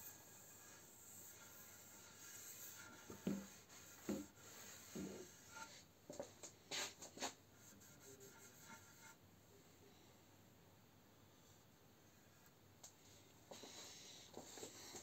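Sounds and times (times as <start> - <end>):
pad wiping on wooden board: 0.0 - 9.2.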